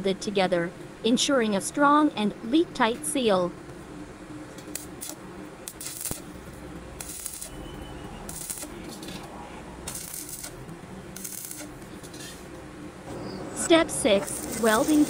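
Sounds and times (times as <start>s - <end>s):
welding arc crackling: 4.3s - 12.6s, 13.9s - 15.0s.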